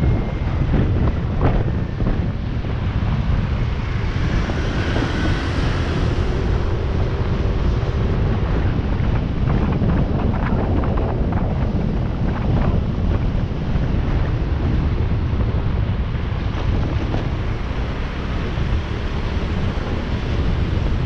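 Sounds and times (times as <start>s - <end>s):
motorcycle engine running: 0.0s - 21.0s
wind buffeting microphone: 0.0s - 21.0s.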